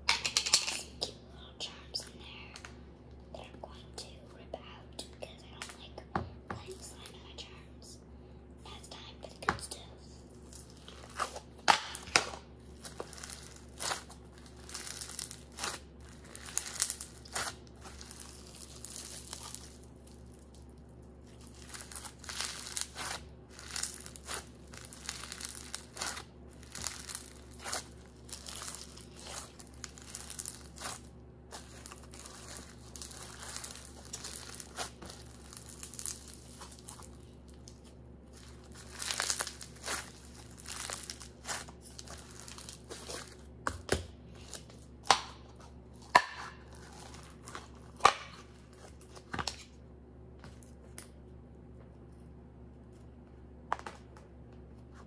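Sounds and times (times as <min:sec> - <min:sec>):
slime crackling and crinkling: 0:09.8 - 0:43.5, 0:44.3 - 0:45.1, 0:45.9 - 0:49.7
slime popping: 0:21.3 - 0:37.7, 0:38.3 - 0:43.3.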